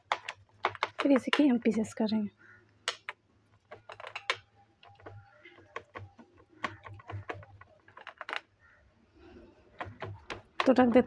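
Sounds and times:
rings knocking on metal: 0.0s - 1.6s, 2.8s - 8.5s, 9.7s - 11.0s
hands patting food in metal tin: 0.0s - 1.7s, 2.9s - 8.5s, 9.7s - 11.0s.

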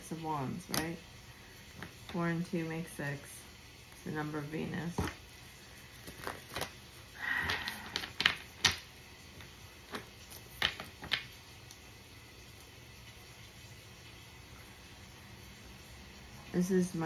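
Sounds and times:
cards rustling: 6.0s - 6.8s
cards tapping and clicking on table: 7.5s - 8.8s, 9.9s - 11.3s.

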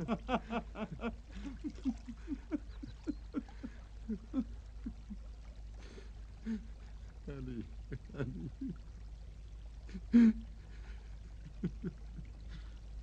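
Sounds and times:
man laughing: 0.0s - 5.2s, 7.3s - 8.8s, 11.4s - 12.6s.

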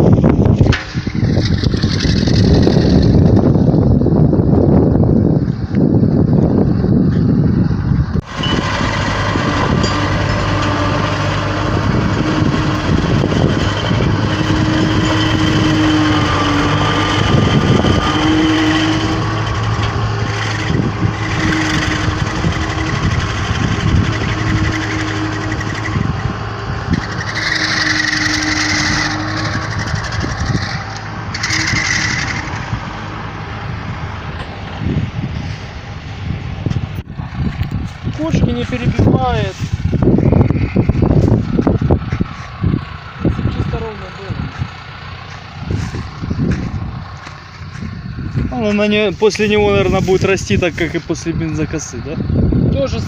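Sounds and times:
mulcher working: 0.0s - 4.1s, 7.0s - 53.0s
tractor engine running: 0.0s - 53.0s
high hissing rush: 45.5s - 53.0s.

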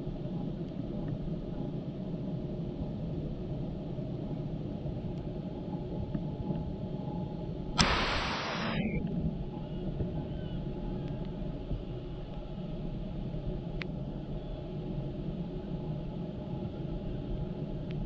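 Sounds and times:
low outdoor rumble: 0.0s - 18.0s
faint click: 7.8s - 9.1s.

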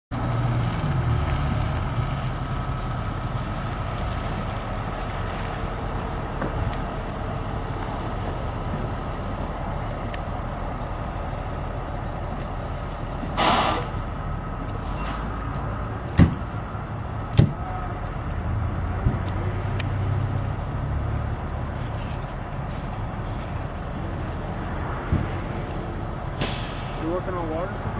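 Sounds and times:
diesel engine running: 0.1s - 27.9s
air brakes hissing: 13.2s - 14.0s, 14.8s - 15.4s, 26.4s - 27.0s.

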